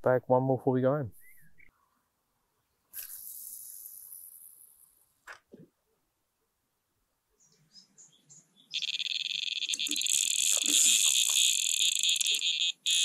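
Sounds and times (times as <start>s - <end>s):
bite alarm bleeping: 8.7s - 13.0s.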